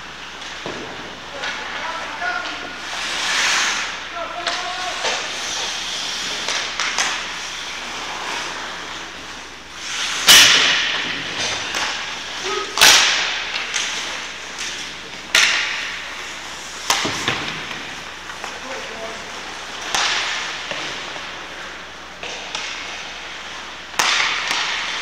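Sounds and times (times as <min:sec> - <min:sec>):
sharp echoing cracks: 0:10.2 - 0:14.1.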